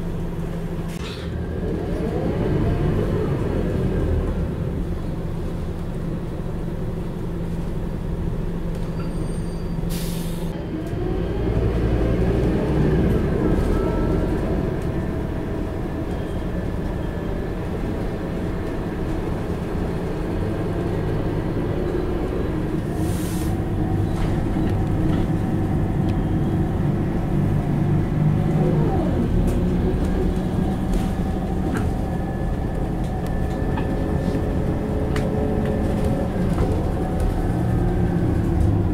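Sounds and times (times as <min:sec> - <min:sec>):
air brake hiss: 0:09.9 - 0:10.5, 0:22.9 - 0:23.6
coach engine running: 0:13.0 - 0:38.9.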